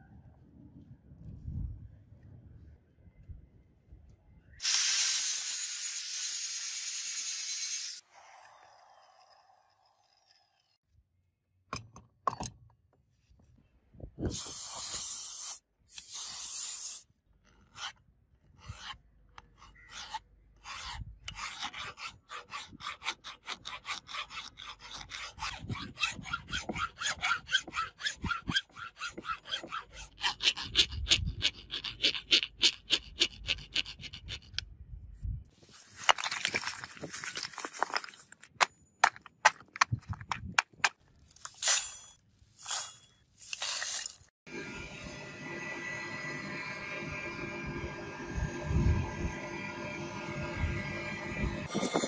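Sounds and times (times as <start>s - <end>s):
hand file rasping on steel: 18.6s - 34.6s.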